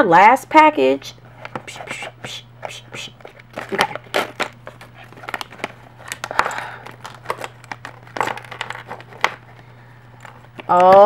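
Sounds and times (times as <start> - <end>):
plastic bag crinkling: 3.4 - 11.0.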